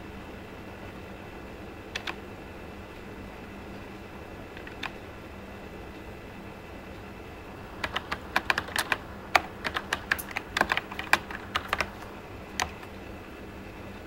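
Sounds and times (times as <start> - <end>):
laptop keyboard typing: 1.9 - 2.3, 4.5 - 5.0, 7.8 - 13.0.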